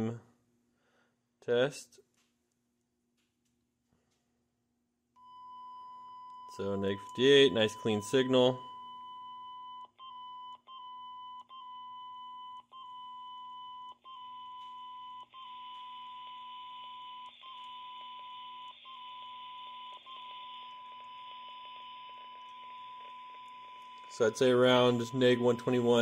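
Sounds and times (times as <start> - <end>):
steady test tone from radio speaker: 5.2 - 26.0.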